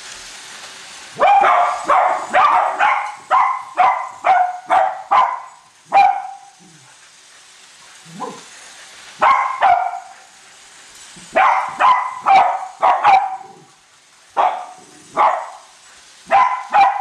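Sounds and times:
dogs barking: 1.2 - 6.8, 9.2 - 10.3, 11.3 - 17.0.

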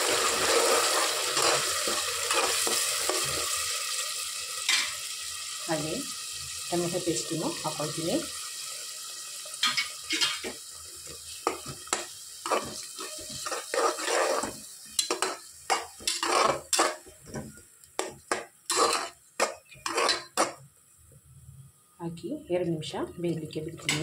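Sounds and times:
paste sizzling in oil: 0.0 - 20.6
spatula scraping pot: 11.5 - 17.1, 18.0 - 20.6.

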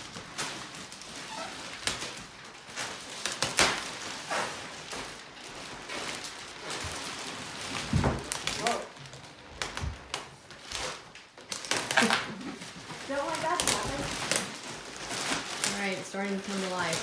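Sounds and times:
plastic wrapping crinkling: 0.0 - 17.0.

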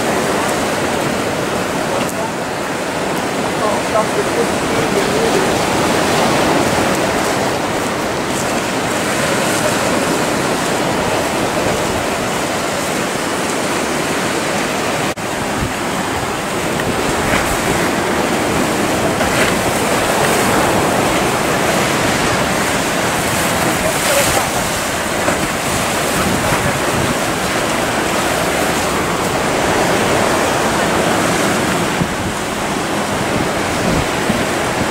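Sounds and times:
choppy waves breaking: 0.0 - 34.9
wind on microphone: 0.0 - 34.9.

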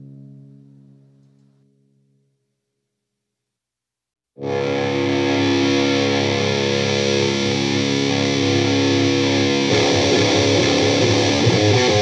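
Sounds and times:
distorted electric guitar: 4.4 - 12.0.

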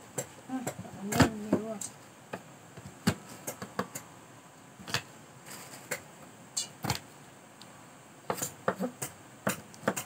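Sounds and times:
knife chopping on wooden board: 8.3 - 10.0.

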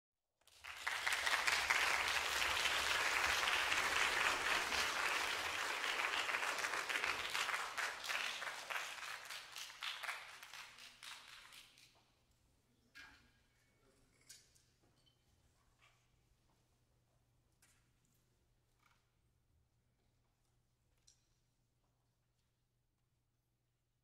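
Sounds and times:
audience applauding: 0.5 - 11.8.

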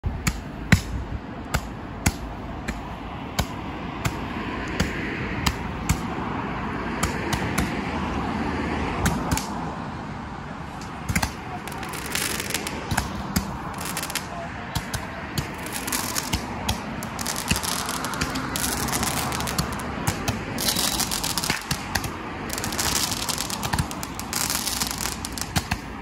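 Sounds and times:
crackling pops: 9.0 - 9.6, 10.7 - 26.0
rushing hiss: 11.6 - 12.8, 13.6 - 14.3, 15.5 - 25.6.

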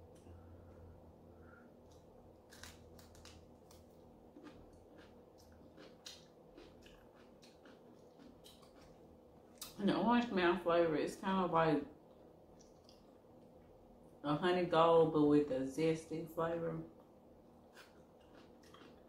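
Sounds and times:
low steady hum: 0.0 - 19.0
chewing and mouth clicks: 1.9 - 9.8, 12.1 - 13.7, 17.7 - 19.0.

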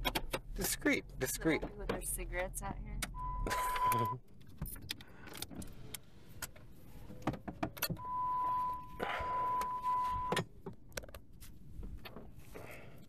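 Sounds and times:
car warning beep: 3.1 - 4.2, 8.0 - 10.4.

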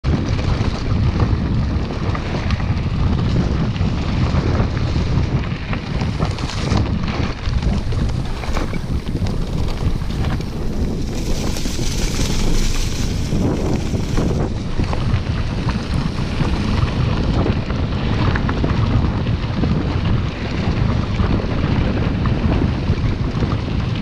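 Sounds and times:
bike rattling over bumps: 0.0 - 24.0
wind buffeting microphone: 0.0 - 24.0
tyre rumble on dirt: 5.2 - 19.8.

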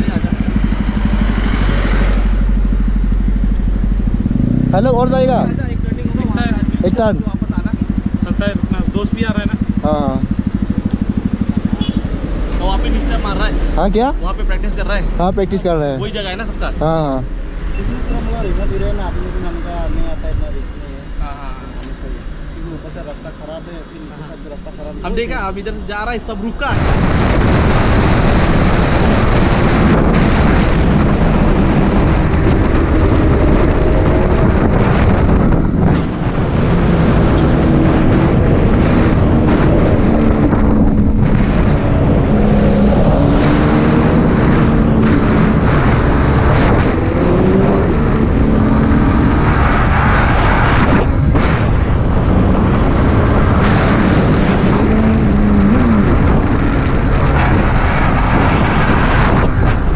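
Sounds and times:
motorcycle engine running hard: 0.0 - 14.3, 26.7 - 59.9
wind noise on microphone: 26.6 - 59.9.

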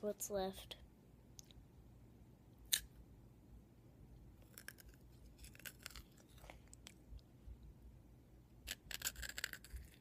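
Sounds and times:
faint crunching chewing: 4.4 - 7.0
teeth biting chocolate bar crack: 4.5 - 7.0.

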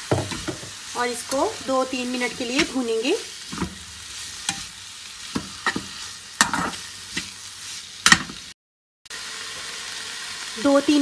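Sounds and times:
metal spatula scraping frying pan: 0.0 - 8.5
food sizzling: 0.0 - 11.0.

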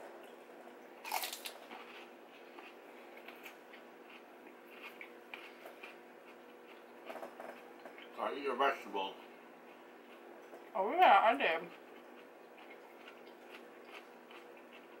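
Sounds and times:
crunchy bite into cucumber: 1.0 - 3.6
chewing crunching: 1.0 - 10.8, 11.7 - 15.0.

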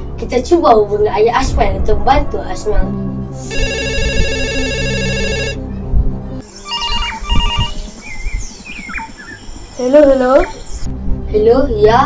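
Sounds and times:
telephone trilling ring: 3.4 - 5.6, 6.6 - 7.8.

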